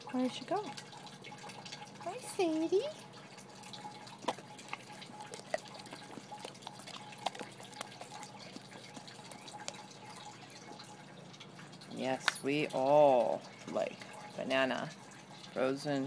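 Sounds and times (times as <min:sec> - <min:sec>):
dog licking a metal spoon: 0:00.2 - 0:11.5.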